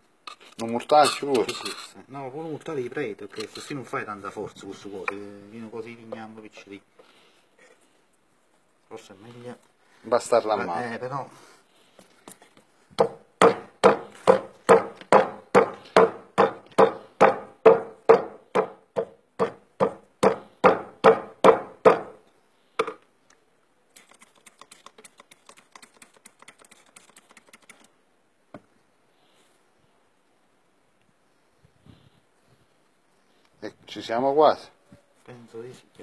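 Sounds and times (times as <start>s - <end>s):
rubber mallet pounding fat on stone: 13.0s - 22.2s.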